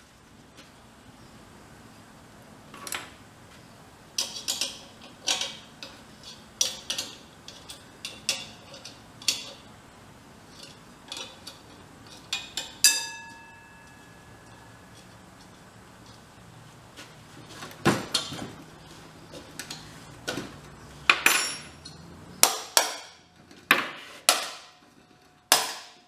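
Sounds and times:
metal clinking and clanking: 0:04.2 - 0:09.7, 0:10.5 - 0:16.2, 0:17.5 - 0:23.8.

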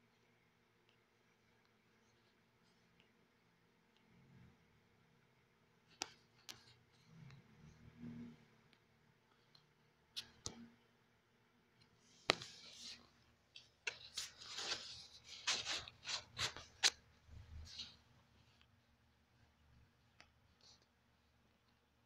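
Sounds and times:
rustling and scraping: 0:12.0 - 0:18.7.

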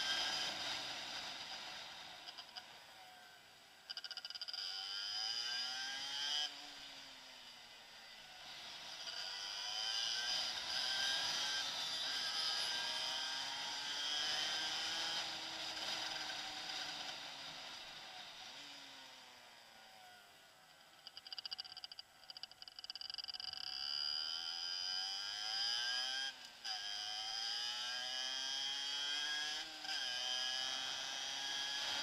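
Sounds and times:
motorcycle engine revving: 0:08.7 - 0:18.0, 0:21.0 - 0:32.0
rapid clicks: 0:21.0 - 0:23.8.

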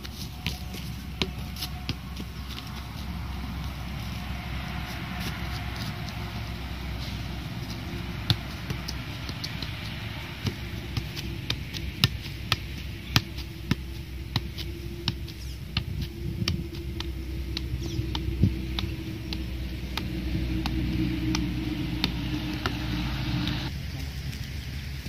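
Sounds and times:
foot tapping football: 0:00.0 - 0:03.7, 0:07.6 - 0:23.7
low outdoor rumble: 0:00.0 - 0:25.0.

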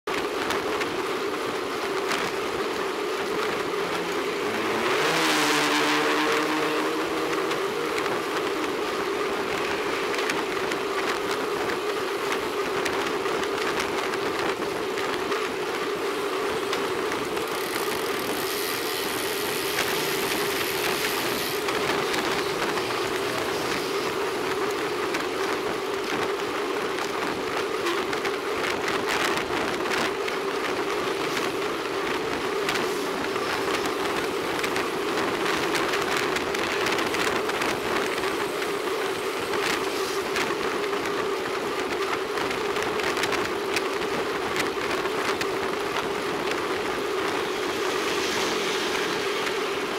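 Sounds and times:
bicycle tyre and wind rumble: 0:00.1 - 0:49.9.

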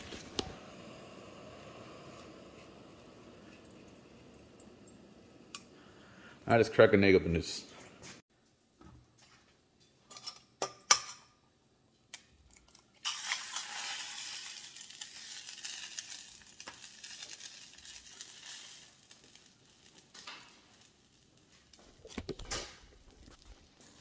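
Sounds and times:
egg sizzling in hot oil: 0:00.0 - 0:05.9, 0:13.0 - 0:24.0.

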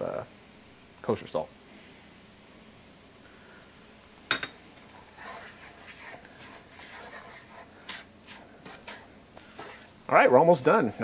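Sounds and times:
wooden spoon scraping a pan: 0:04.5 - 0:11.0.

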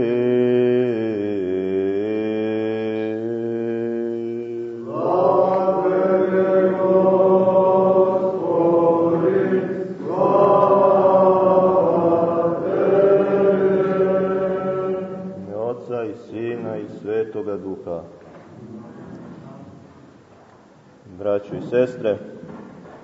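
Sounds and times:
voices chanting long notes: 0:00.0 - 0:15.7.

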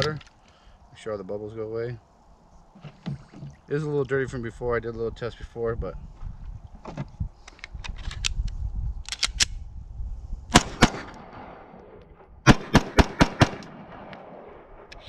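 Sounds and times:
pistol shots: 0:10.5 - 0:14.7.

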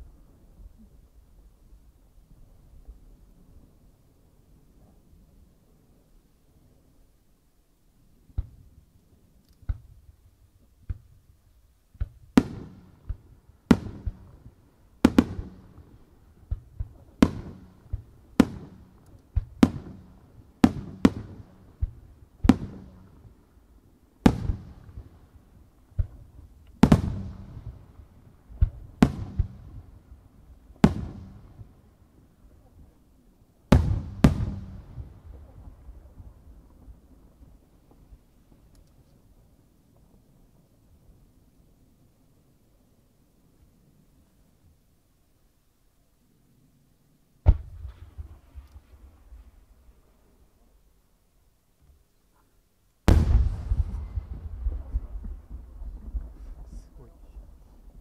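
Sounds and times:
firework shells bursting with echo: 0:11.9 - 0:23.4, 0:33.7 - 0:36.9, 0:53.0 - 0:58.0.

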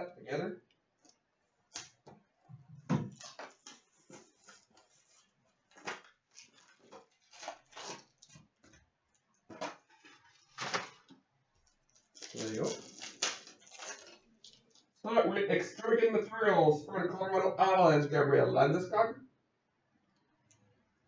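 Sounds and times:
wrappers crinkling: 0:03.1 - 0:08.8, 0:09.6 - 0:15.0.

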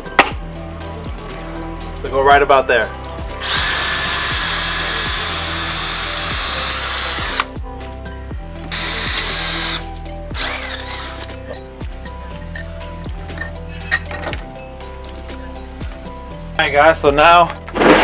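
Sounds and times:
cordless drill boring plywood: 0:03.4 - 0:07.5, 0:08.7 - 0:09.8, 0:10.4 - 0:11.3.

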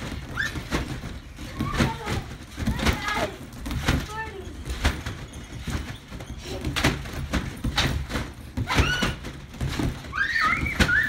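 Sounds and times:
trampoline mat thumping: 0:00.0 - 0:11.0
child squealing: 0:10.1 - 0:11.0.

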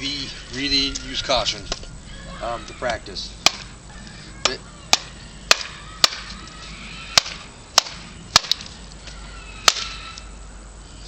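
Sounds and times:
machete chopping into wood: 0:03.4 - 0:03.7, 0:07.2 - 0:08.7.

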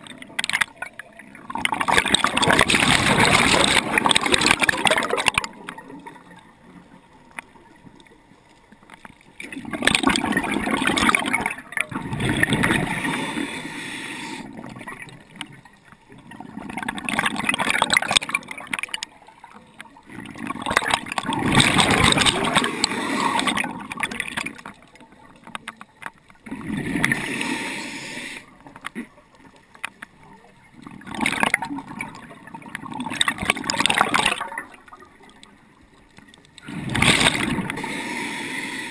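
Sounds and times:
gurgling exhaled bubbles: 0:00.0 - 0:07.7, 0:09.4 - 0:25.6, 0:26.4 - 0:29.2, 0:30.2 - 0:35.5, 0:36.6 - 0:38.9
regulator breath hiss: 0:13.0 - 0:14.5, 0:27.2 - 0:28.5, 0:37.8 - 0:38.9.

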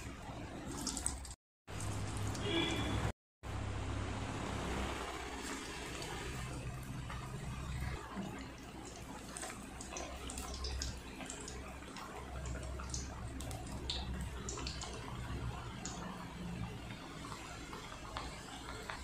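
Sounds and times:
food deep-frying in oil: 0:00.0 - 0:19.0
sharp oil crackles: 0:00.4 - 0:03.1.

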